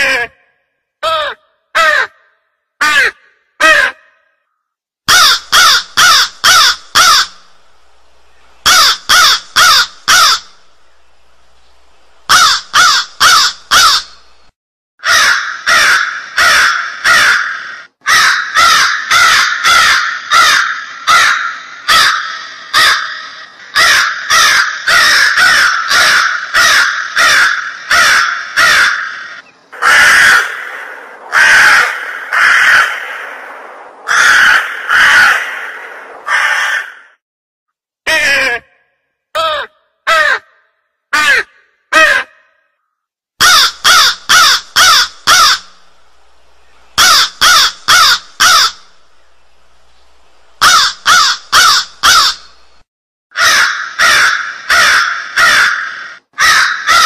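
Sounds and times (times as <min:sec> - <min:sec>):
crow cawing: 0:01.0 - 0:04.4, 0:05.1 - 0:07.4, 0:08.7 - 0:10.6, 0:12.3 - 0:14.2, 0:15.0 - 0:37.2, 0:39.4 - 0:42.6, 0:43.4 - 0:45.7, 0:47.0 - 0:48.9, 0:50.6 - 0:52.6, 0:53.3 - 0:57.0.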